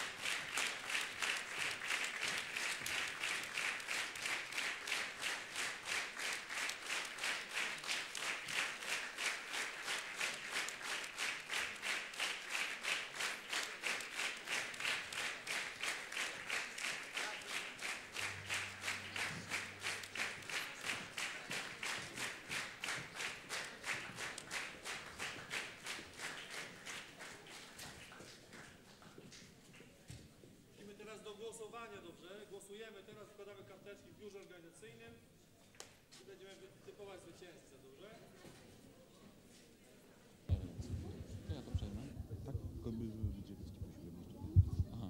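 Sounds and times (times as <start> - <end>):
audience clapping in rhythm: 0.0 - 30.0, 40.5 - 43.4.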